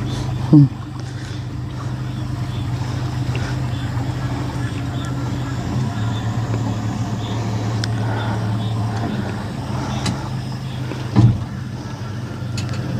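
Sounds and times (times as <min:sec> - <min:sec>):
boat motor humming: 0:00.0 - 0:12.9
low thump: 0:11.1 - 0:11.5.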